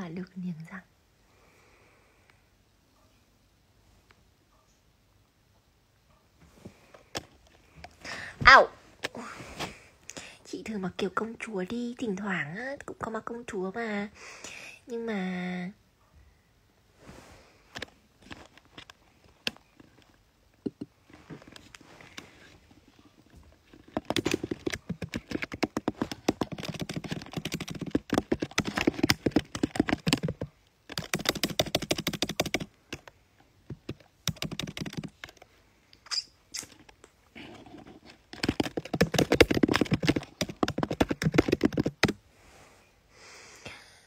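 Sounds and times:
typing on a phone: 0:23.7 - 0:33.1, 0:33.7 - 0:35.4, 0:38.3 - 0:42.2.

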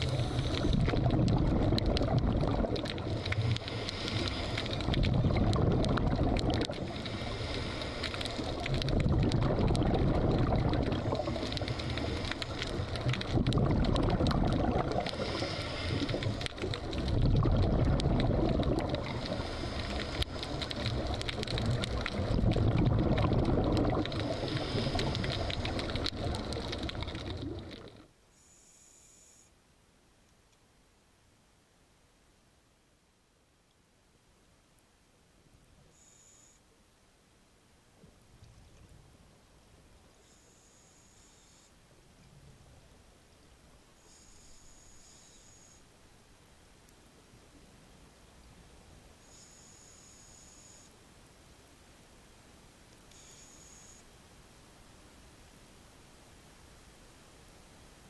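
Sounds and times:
regulator breathing underwater: 0:00.0 - 0:01.5, 0:03.0 - 0:05.4, 0:06.8 - 0:08.6, 0:14.9 - 0:17.0, 0:18.9 - 0:21.0, 0:24.2 - 0:26.7
exhaled bubbles: 0:00.0 - 0:28.1.

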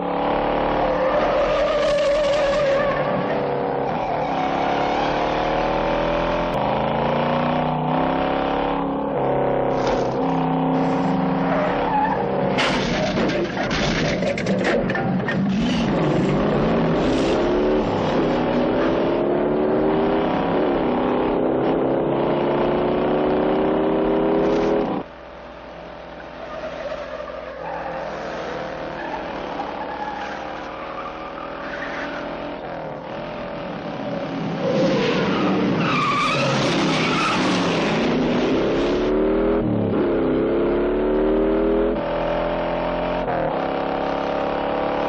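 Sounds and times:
tires squealing: 0:00.6 - 0:05.8, 0:09.7 - 0:18.9, 0:26.2 - 0:32.6, 0:34.3 - 0:39.1.

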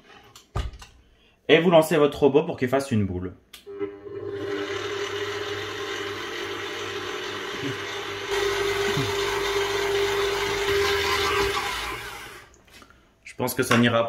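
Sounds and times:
stand mixer motor hum: 0:04.0 - 0:12.5.

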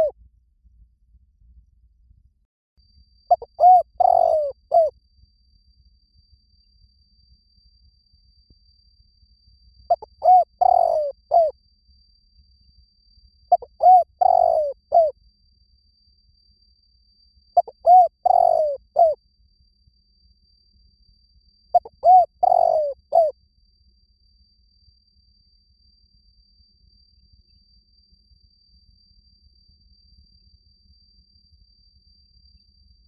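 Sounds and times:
dove cooing: 0:03.3 - 0:04.9, 0:09.9 - 0:11.5, 0:13.5 - 0:15.1, 0:17.6 - 0:19.2, 0:21.8 - 0:23.3.

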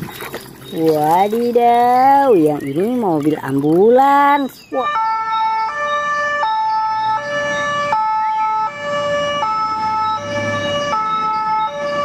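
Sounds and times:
street traffic rumble: 0:00.0 - 0:12.0
two-tone ambulance siren: 0:04.7 - 0:12.0.

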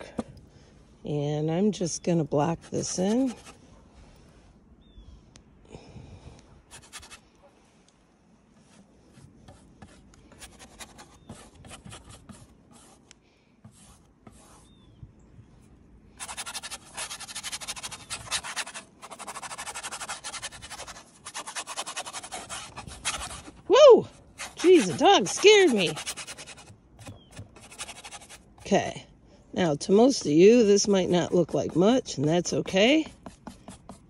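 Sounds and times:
paintbrush scrubbing on canvas: 0:02.5 - 0:03.6, 0:06.7 - 0:07.2, 0:13.7 - 0:14.8, 0:16.2 - 0:23.7, 0:24.3 - 0:28.9, 0:29.6 - 0:34.0.

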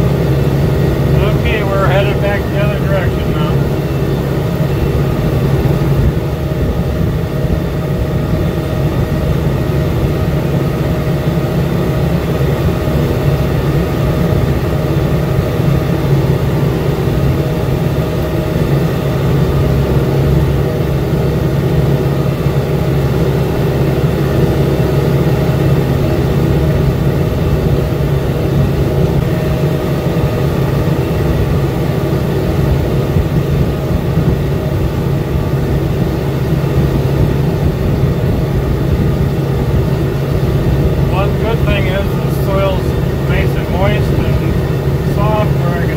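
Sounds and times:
tractor engine under load: 0:00.0 - 0:26.2, 0:38.7 - 0:45.9.

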